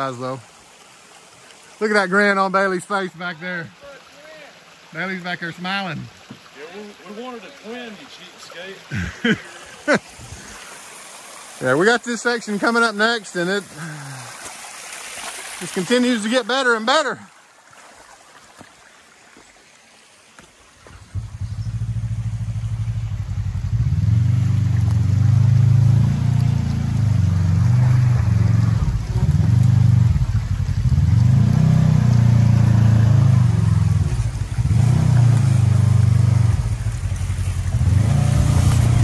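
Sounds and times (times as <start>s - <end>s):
off-road vehicle engine revving: 21.0s - 39.0s.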